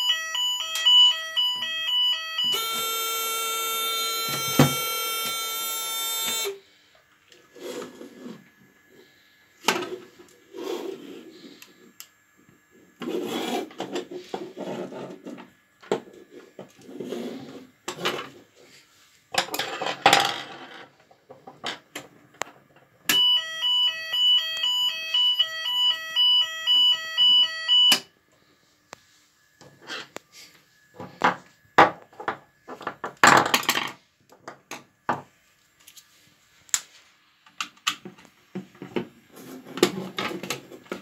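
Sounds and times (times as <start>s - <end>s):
pulsing two-tone fire alarm: 0.0s - 6.6s, 23.1s - 28.1s
steady alarm tone: 0.0s - 6.9s, 23.1s - 31.5s.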